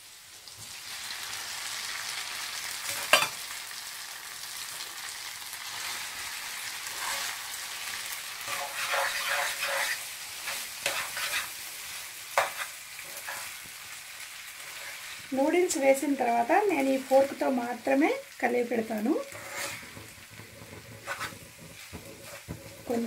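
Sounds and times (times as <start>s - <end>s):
noodles sizzling in oil: 0.0s - 23.0s
fork scraping through noodles: 6.9s - 7.5s, 8.4s - 11.6s, 12.4s - 13.6s, 14.6s - 15.1s, 19.2s - 22.9s
fork tapping a pan: 12.4s - 13.4s.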